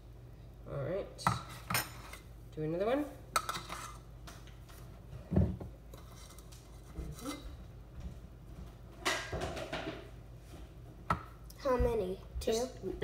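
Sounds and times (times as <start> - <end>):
metal spoon scraping in can: 3.4 - 4.0.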